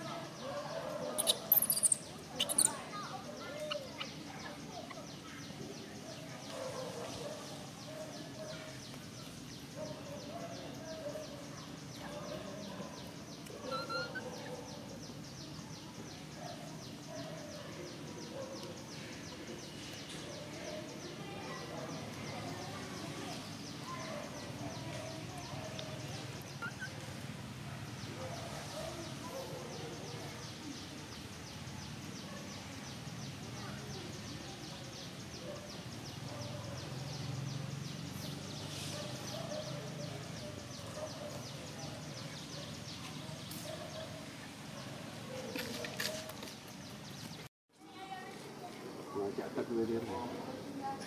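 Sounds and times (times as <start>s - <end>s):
birds chirping: 0.0s - 47.5s.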